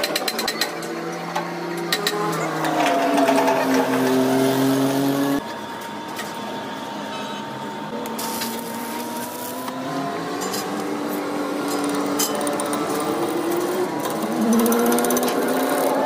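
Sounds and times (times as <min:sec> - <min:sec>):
lathe motor humming: 0:01.4 - 0:16.0
welding arc hissing and crackling: 0:07.9 - 0:09.8.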